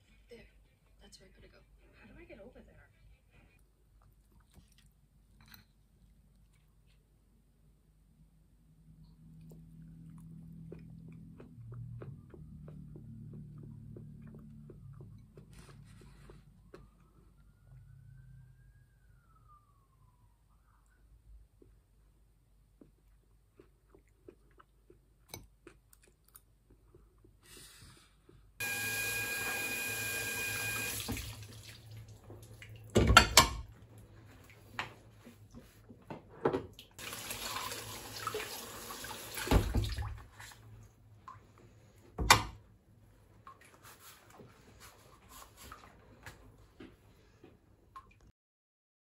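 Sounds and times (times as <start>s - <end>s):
sink tap running: 28.6s - 31.5s, 37.0s - 39.8s.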